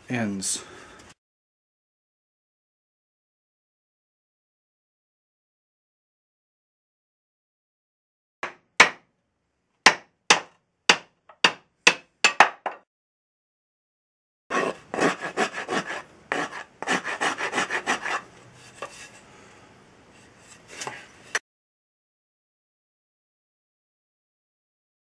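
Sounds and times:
blade shaving wood: 14.5s - 18.2s.

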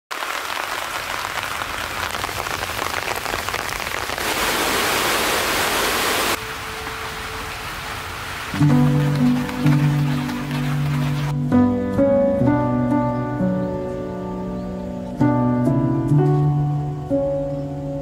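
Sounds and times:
rain pattering: 0.1s - 11.5s.

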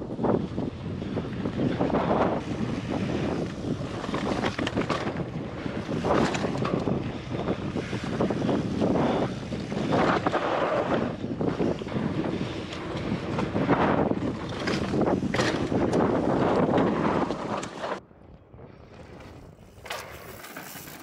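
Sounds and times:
wind buffeting microphone: 0.0s - 20.8s
bike tyre noise on dirt: 0.0s - 21.0s
bike rattling clicks: 5.8s - 8.2s, 14.4s - 18.0s, 19.2s - 21.0s.

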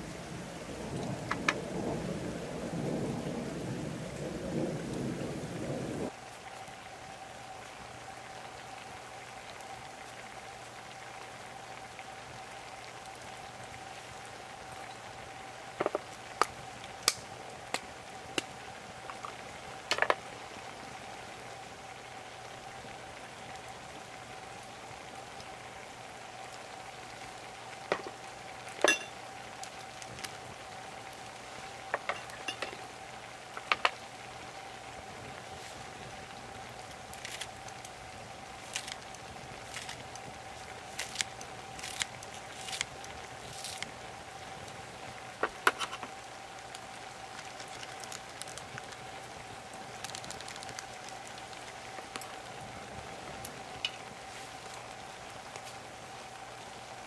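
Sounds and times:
pot of noodles boiling: 0.0s - 57.0s
burning wood popping and crackling: 0.7s - 2.0s, 13.0s - 20.7s, 26.5s - 56.4s.

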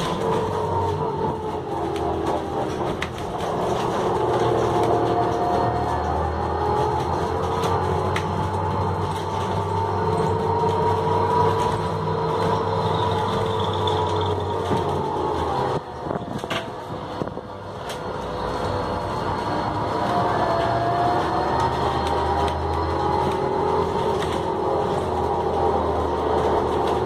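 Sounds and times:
bus engine hum: 0.0s - 27.0s.

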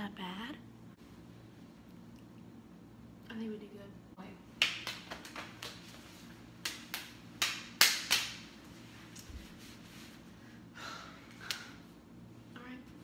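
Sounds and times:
hand claps: 4.6s - 8.5s, 11.3s - 11.8s
finger snaps: 11.4s - 11.8s.

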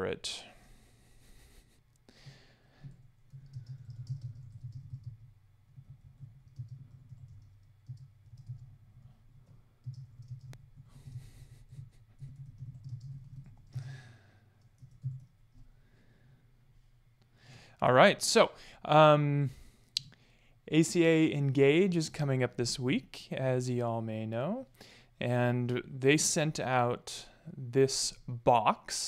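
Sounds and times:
breaths close to microphone: 0.4s - 4.0s, 13.7s - 14.7s, 15.7s - 16.6s, 17.3s - 17.8s, 18.6s - 18.9s, 19.5s - 20.6s, 24.7s - 25.2s
mouse and keyboard clicking: 2.9s - 5.2s, 6.2s - 8.7s, 12.2s - 13.7s.

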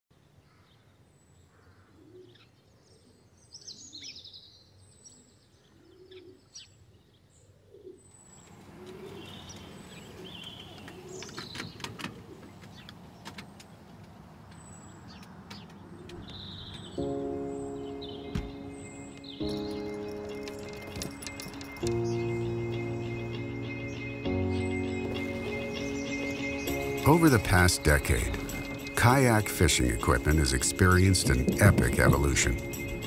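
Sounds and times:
birds chirping and calling: 1.2s - 33.0s
sharp ticks: 27.2s - 33.0s.

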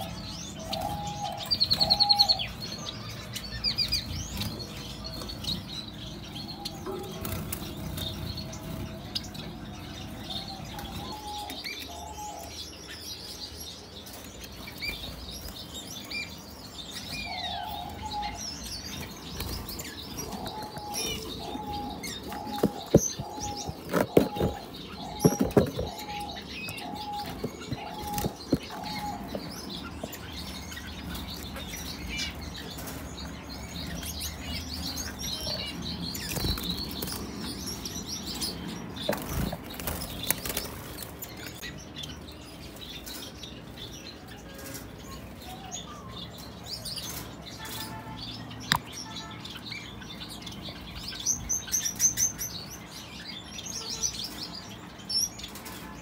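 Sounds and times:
small birds twittering: 0.0s - 56.0s.

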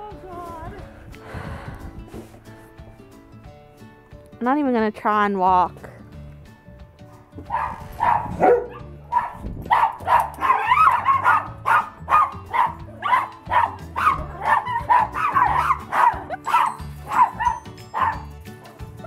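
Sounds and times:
background music: 0.0s - 19.0s
small dogs barking: 7.4s - 18.3s.

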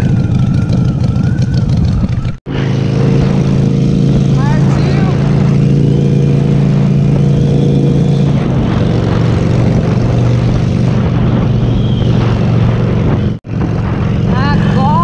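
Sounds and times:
motorcycle engine running: 0.0s - 15.0s
wind rushing over microphone: 0.0s - 15.0s.

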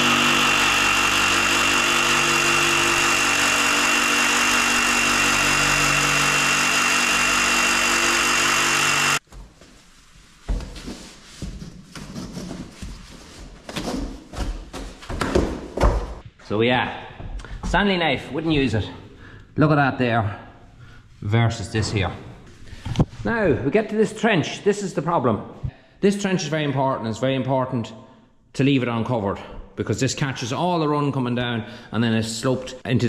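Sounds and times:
jigsaw cutting foam: 0.0s - 9.2s.

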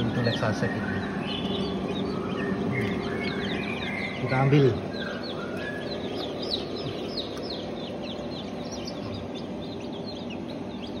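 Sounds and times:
chicks peeping: 0.0s - 11.0s
steady low hum: 0.0s - 11.0s.

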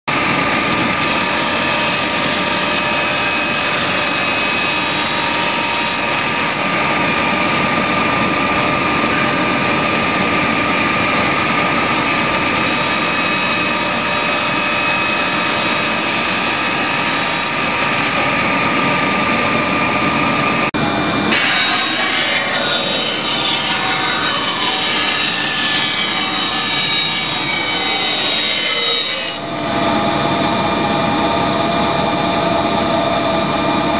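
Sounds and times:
saw cutting wooden panel: 0.2s - 9.4s, 10.4s - 18.6s, 21.2s - 30.1s.

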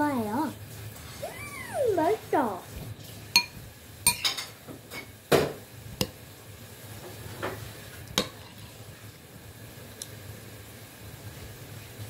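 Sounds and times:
spoon clinking against glass bowl: 3.4s - 4.5s.

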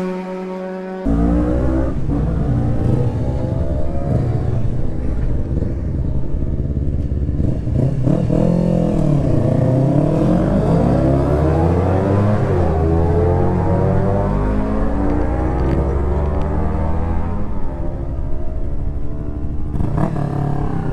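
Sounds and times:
motorcycle engines revving: 0.0s - 20.9s.

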